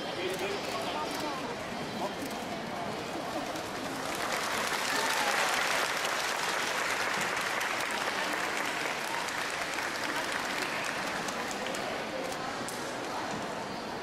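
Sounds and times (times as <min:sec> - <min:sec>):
audience applauding: 0:03.6 - 0:12.1.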